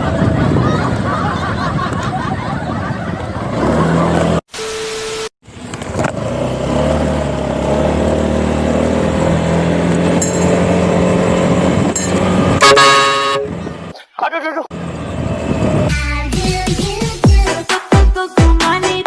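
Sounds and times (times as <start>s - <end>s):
scooter horn honking: 12.6s - 13.8s.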